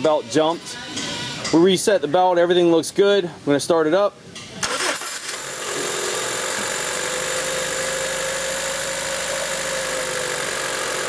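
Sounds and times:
car engine idling: 5.4 - 11.0.

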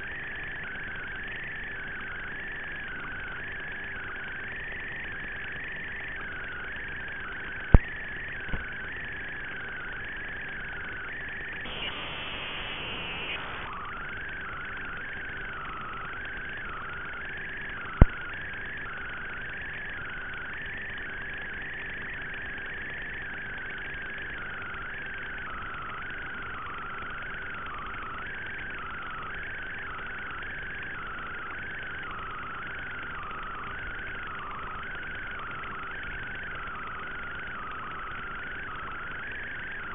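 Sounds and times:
wavering high whine: 0.0 - 39.9
faint low hum: 5.8 - 22.0
steady hiss: 11.7 - 13.7
rush of static: 11.7 - 13.8.

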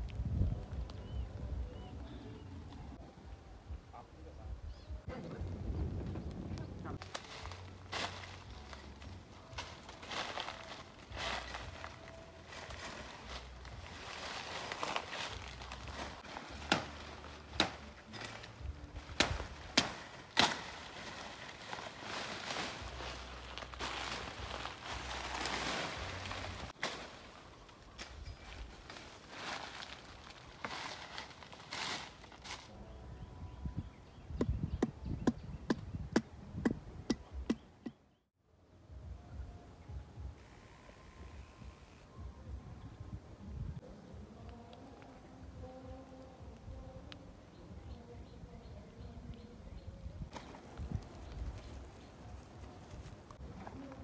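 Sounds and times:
leaves and branches rustling: 4.8 - 33.1, 43.8 - 54.0
sharp cracks of branches: 7.0 - 8.5, 14.2 - 32.7.

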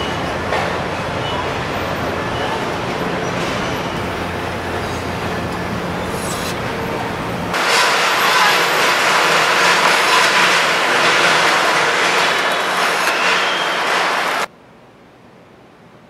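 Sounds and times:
machinery drone: 0.0 - 14.5
air hiss: 6.0 - 6.6.

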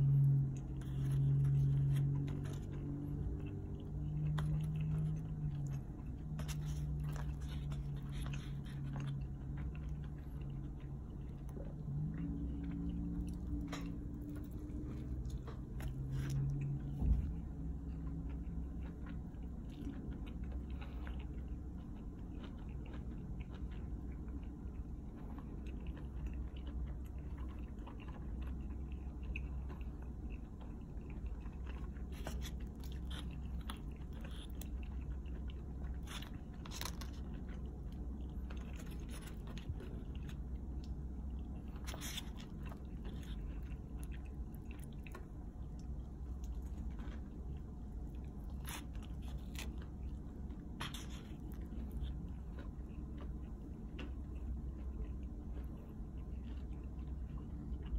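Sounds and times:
person chewing pizza: 0.0 - 57.9
steady low hum: 0.0 - 57.9
crust crunching: 31.3 - 54.5.

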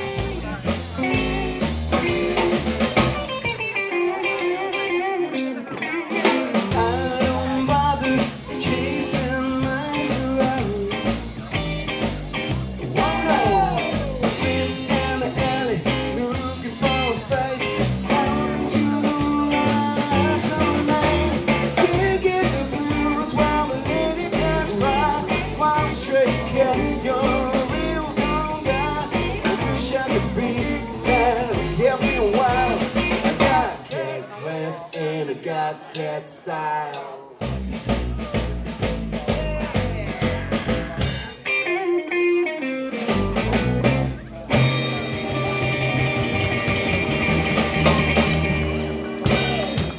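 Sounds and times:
walking upright bass: 0.0 - 3.6, 6.3 - 33.8, 37.4 - 41.4, 43.0 - 49.9
electric guitar lead: 0.0 - 33.7, 39.0 - 49.9
drums: 0.0 - 36.1, 36.9 - 49.9.

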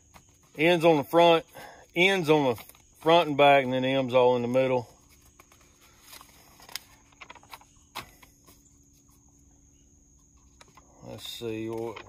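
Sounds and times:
paper pages rustling: 2.2 - 9.4, 10.4 - 12.0.

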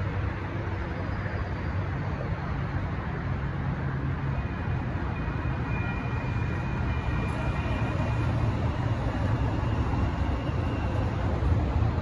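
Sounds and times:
train rumbling over tracks: 0.0 - 12.0.

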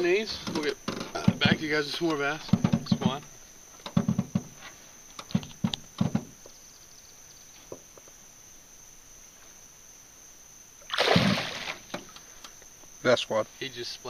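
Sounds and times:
crickets chirring: 0.0 - 14.0
fish splashing in water: 10.8 - 12.1.

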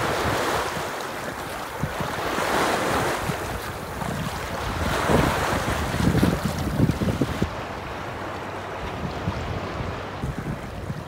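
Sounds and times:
waves breaking on rocks: 0.0 - 7.6
wind buffeting microphone: 0.0 - 11.0.

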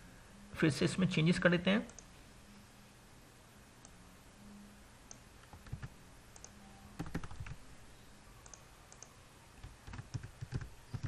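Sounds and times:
computer mouse clicks: 5.1 - 7.6, 8.4 - 11.0
keyboard key presses: 5.5 - 7.6, 8.5 - 11.0.

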